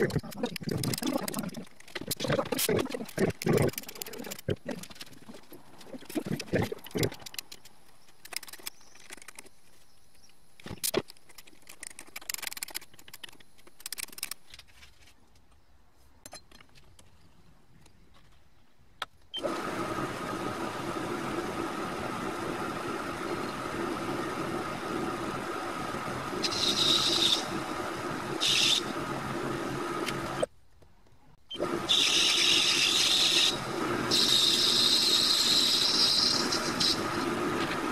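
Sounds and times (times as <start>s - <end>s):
lathe motor humming: 19.4s - 30.5s
cutting tool hissing on brass: 26.4s - 27.5s, 31.9s - 37.1s.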